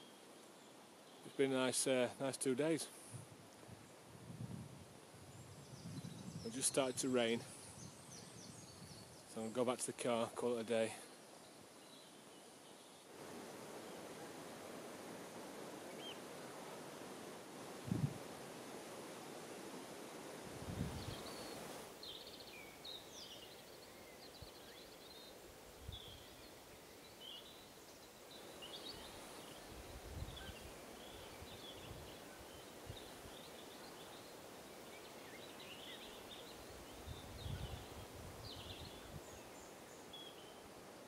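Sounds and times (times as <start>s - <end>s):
background hiss: 0.0s - 41.0s
small birds chirping: 5.3s - 14.2s, 15.8s - 16.3s, 20.7s - 41.0s.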